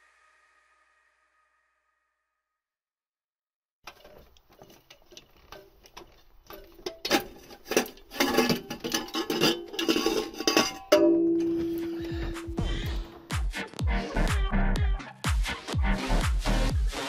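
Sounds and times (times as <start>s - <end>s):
metal engine parts clinking: 3.9s - 13.2s
music: 11.2s - 17.0s.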